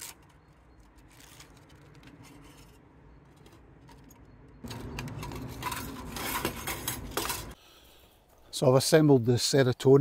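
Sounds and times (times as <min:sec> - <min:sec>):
metal panels scraping and tapping: 0:04.6 - 0:07.6.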